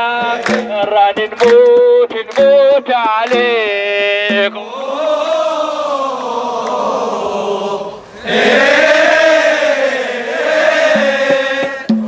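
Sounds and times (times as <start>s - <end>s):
men chanting in unison: 0.0s - 1.5s, 4.3s - 12.0s.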